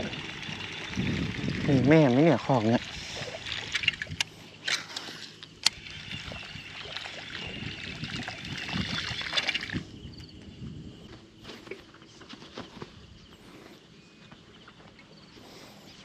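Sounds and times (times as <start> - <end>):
sharp clicks: 3.8 - 5.8.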